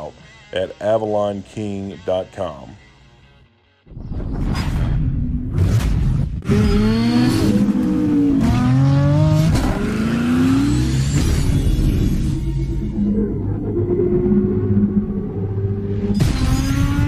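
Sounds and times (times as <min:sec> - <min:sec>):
engine revving up and down: 0:05.3 - 0:17.0
sharp hits: 0:10.8 - 0:13.0.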